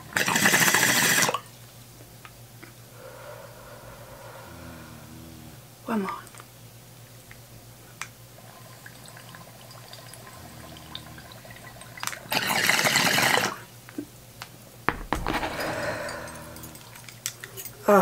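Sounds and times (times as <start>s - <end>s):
steady low hum: 1.5s - 12.3s, 13.7s - 17.9s
water gurgling: 8.4s - 13.6s.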